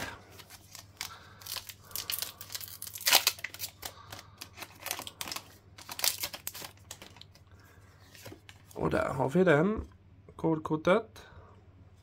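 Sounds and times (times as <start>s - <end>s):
foil wrapper crinkling and ripping: 0.3s - 7.4s.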